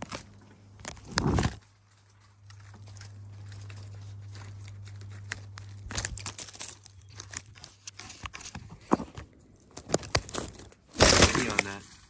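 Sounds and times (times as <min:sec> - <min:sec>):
footsteps crunching in dry bedding: 0:00.0 - 0:09.1
low steady hum: 0:00.0 - 0:12.0.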